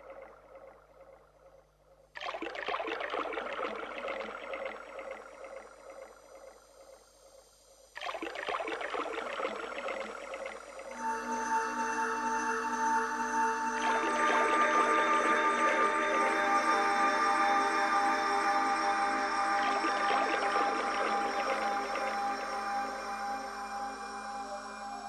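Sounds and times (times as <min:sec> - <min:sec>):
held chord of steady tones: 0:10.9 - 0:25.0.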